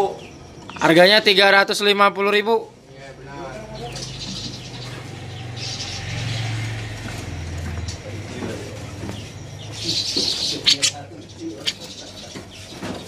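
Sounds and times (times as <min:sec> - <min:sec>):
birds chirping faintly: 0:00.0 - 0:13.0
birds rustling: 0:03.1 - 0:13.0.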